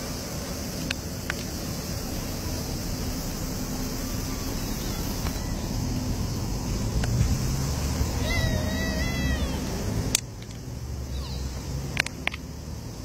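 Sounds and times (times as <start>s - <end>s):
low rumble: 1.0s - 11.0s.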